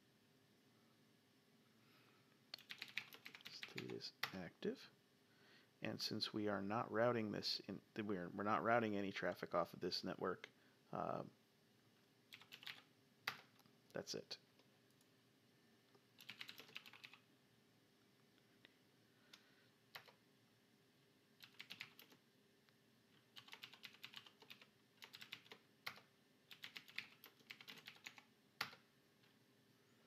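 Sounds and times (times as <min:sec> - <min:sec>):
faint keyboard typing: 0:02.5 - 0:04.8, 0:12.3 - 0:15.1, 0:15.9 - 0:17.3, 0:19.2 - 0:20.2, 0:21.4 - 0:22.2, 0:23.1 - 0:29.4.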